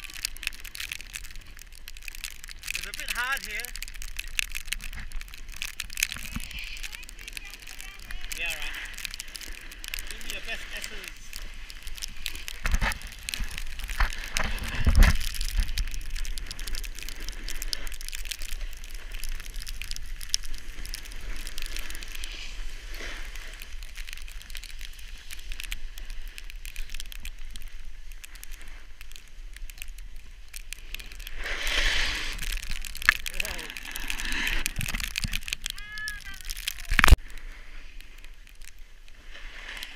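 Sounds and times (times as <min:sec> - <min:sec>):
snowboards scraping over snow: 0:30.2 - 0:32.8.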